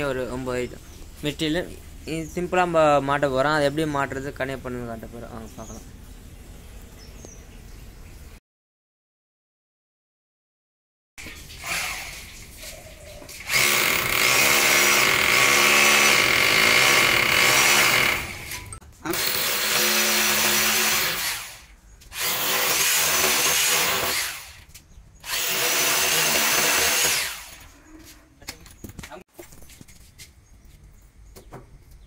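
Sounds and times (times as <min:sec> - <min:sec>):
electric drill boring into wall: 0:11.6 - 0:12.2, 0:13.4 - 0:27.7.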